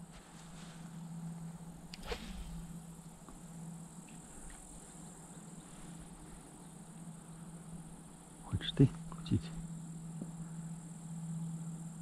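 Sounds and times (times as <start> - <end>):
insects chirring: 0.0 - 12.0
low steady hum: 0.0 - 12.0
brief swish: 2.0 - 2.7.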